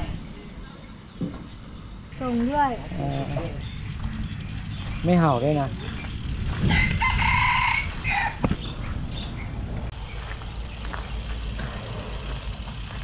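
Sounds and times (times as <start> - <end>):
low steady rumble: 1.8 - 13.0
rooster crowing: 6.5 - 8.4.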